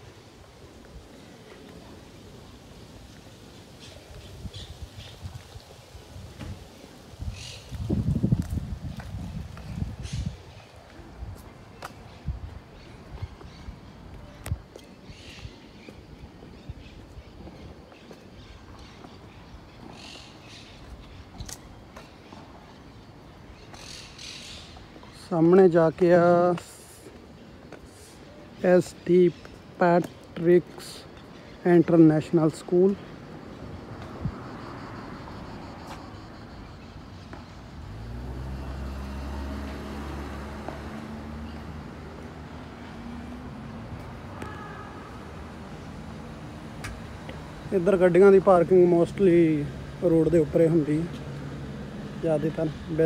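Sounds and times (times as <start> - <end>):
street background noise: 0.0 - 53.0.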